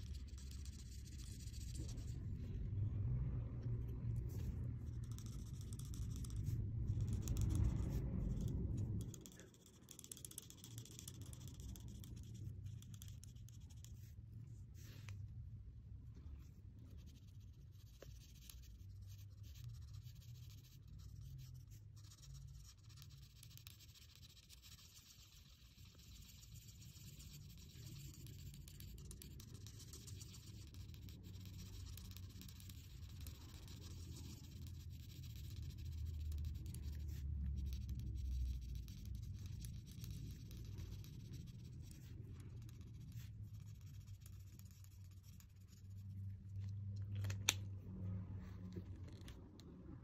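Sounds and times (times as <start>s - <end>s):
marker scratching on paper: 0.0s - 2.2s, 4.1s - 15.2s, 16.4s - 46.8s
low rumble: 0.0s - 10.1s, 45.4s - 50.0s.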